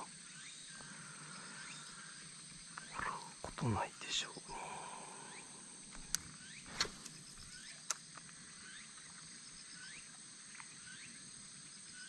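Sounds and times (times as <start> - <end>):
sharp clicks: 5.9 - 8.2.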